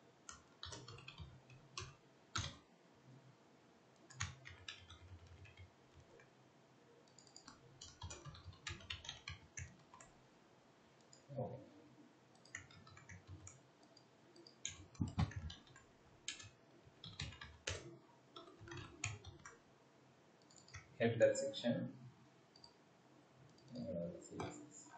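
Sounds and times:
computer keyboard typing: 0:00.2 - 0:02.6, 0:04.0 - 0:06.3, 0:07.0 - 0:10.1, 0:12.3 - 0:19.6, 0:20.4 - 0:20.9, 0:23.5 - 0:24.6.

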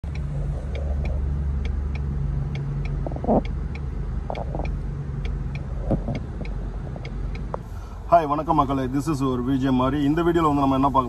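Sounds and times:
light ticking: 0:00.0 - 0:07.8
car engine and road rumble: 0:00.0 - 0:11.0.

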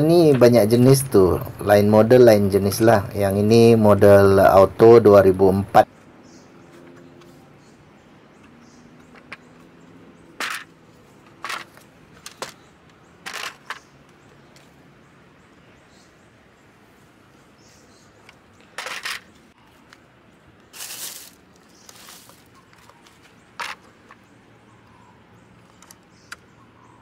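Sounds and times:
plastic fan knocks and clicks: 0:08.4 - 0:09.5
plastic bag rustle: 0:20.7 - 0:23.8.

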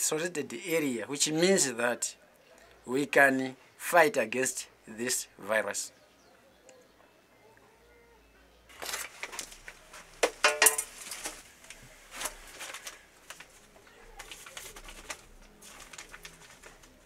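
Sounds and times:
glass jars clinking: 0:10.4 - 0:11.0.

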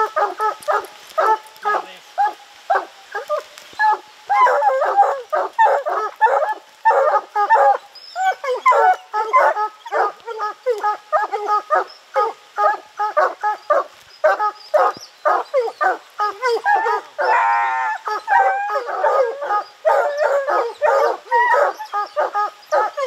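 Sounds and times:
dog's long broken call: 0:00.0 - 0:23.0
hounds baying: 0:00.0 - 0:23.0.

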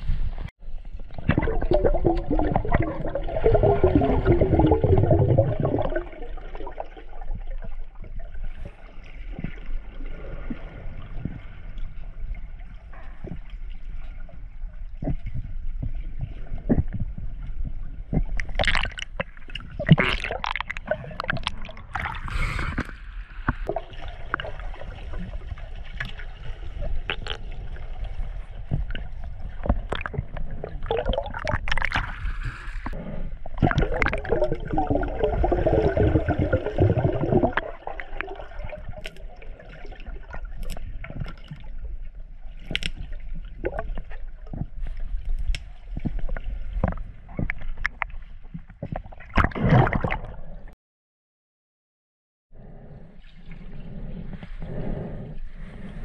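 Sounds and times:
underwater gurgling and bubbling: 0:00.0 - 0:45.2, 0:45.8 - 0:50.7.

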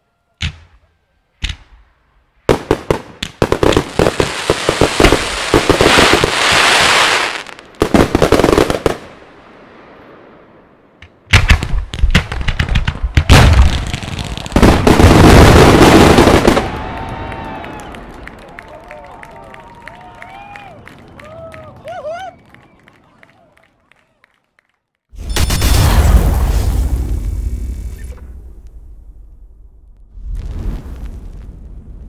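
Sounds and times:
fireworks bursting and crackling: 0:01.4 - 0:18.3, 0:30.0 - 0:32.0.

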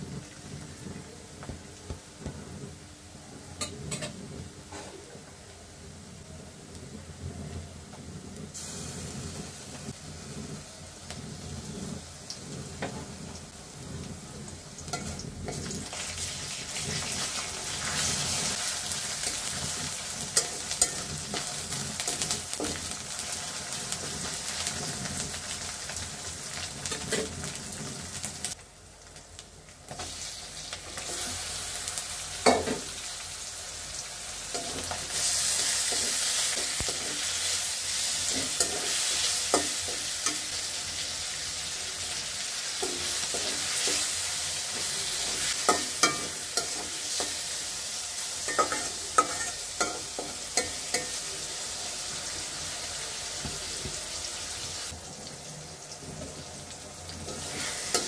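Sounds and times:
onions sizzling in hot oil: 0:00.0 - 0:58.0
metal spatula scraping pan: 0:34.5 - 0:41.1, 0:42.7 - 0:47.6, 0:48.4 - 0:51.2.

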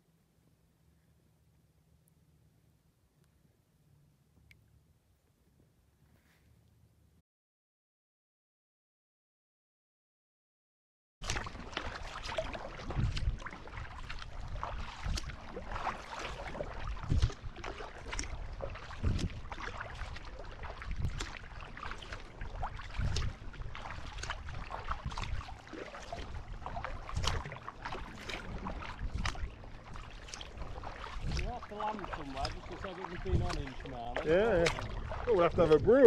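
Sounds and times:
paddle blades splashing: 0:11.2 - 0:36.0
water lapping against hull: 0:11.2 - 0:36.0.

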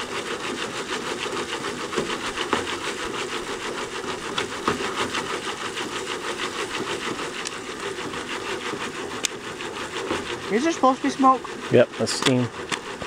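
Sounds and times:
foil pan rattling on wire grate: 0:11.7 - 0:13.0.

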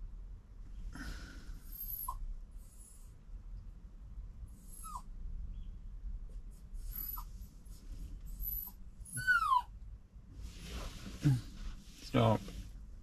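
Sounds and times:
dog whining: 0:01.6 - 0:03.0, 0:04.6 - 0:05.1, 0:06.8 - 0:07.3, 0:08.3 - 0:09.8.

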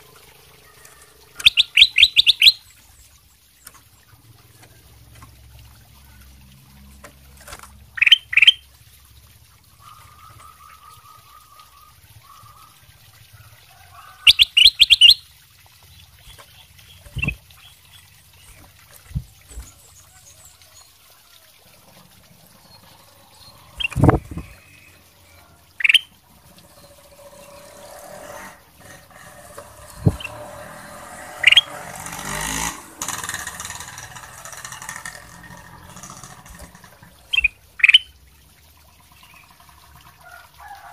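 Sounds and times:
bird chirping: 0:00.6 - 0:03.8, 0:08.0 - 0:08.6, 0:14.2 - 0:15.2, 0:16.2 - 0:20.6, 0:22.6 - 0:27.6, 0:31.4 - 0:31.8, 0:37.3 - 0:38.1.

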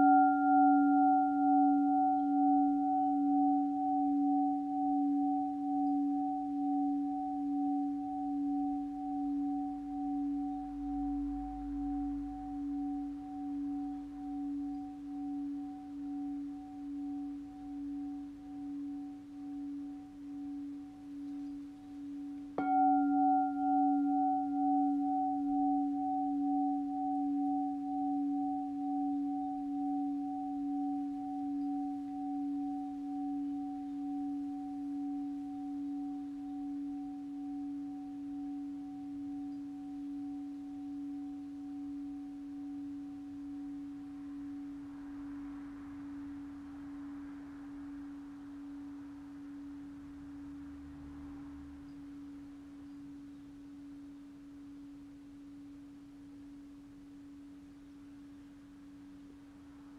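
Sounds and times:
singing bowl struck knock: 0:00.0 - 0:44.8
singing bowl ringing hum: 0:00.0 - 0:59.9.

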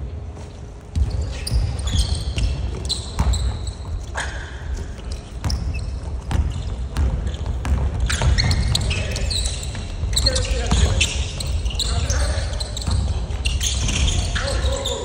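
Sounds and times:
sneakers squeaking: 0:00.1 - 0:15.0
basketball bouncing on hardwood: 0:00.9 - 0:04.1, 0:05.4 - 0:09.2.

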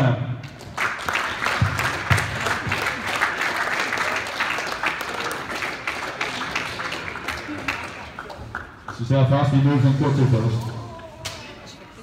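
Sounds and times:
group applauding: 0:00.5 - 0:09.0.

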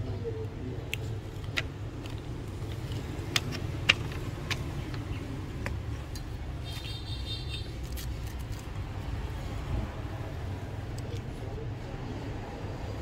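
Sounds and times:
low traffic rumble: 0:00.0 - 0:13.0
small tools clicking and tapping: 0:00.9 - 0:06.7.

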